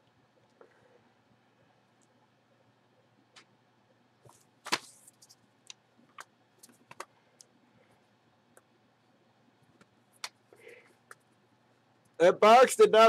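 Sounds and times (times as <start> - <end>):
paper rustling: 4.2 - 5.4.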